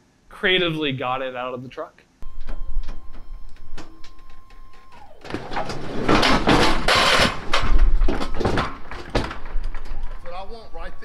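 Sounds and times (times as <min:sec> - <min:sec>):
steady high hum: 0:02.2 - 0:11.0
wooden crate scraping: 0:05.3 - 0:11.0
wood knocking against metal: 0:05.5 - 0:11.0.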